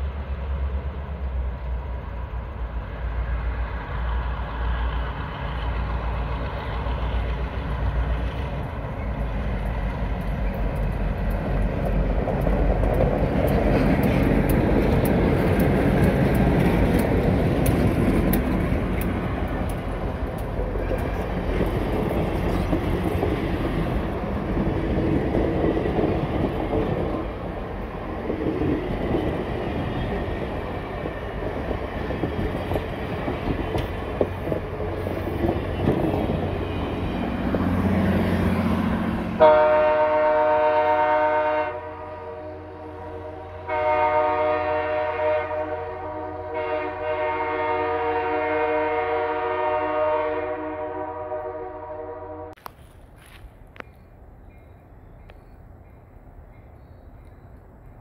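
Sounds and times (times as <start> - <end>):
train wheels rumbling on rails: 0.0 - 51.6
train air horn blasts: 39.4 - 52.6.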